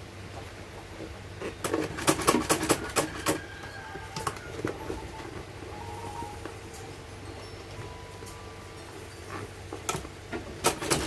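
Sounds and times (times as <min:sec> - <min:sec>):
steady low hum: 0:00.0 - 0:10.9.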